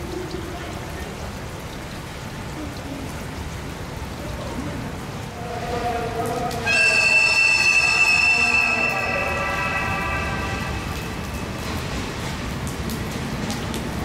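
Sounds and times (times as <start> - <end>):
train rushing noise: 5.2 - 14.0
loud sustained pitched tone: 5.4 - 11.7.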